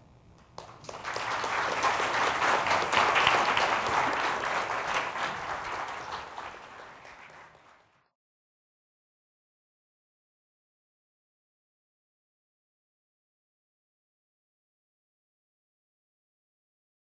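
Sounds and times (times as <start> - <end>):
audience applauding: 0.4 - 8.1.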